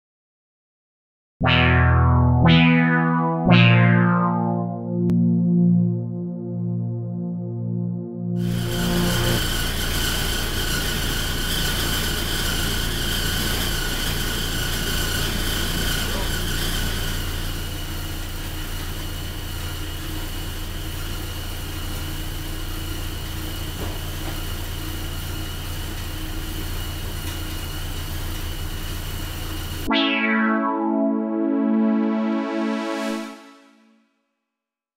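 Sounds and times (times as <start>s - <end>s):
thin high whine: 8.2s - 10.7s.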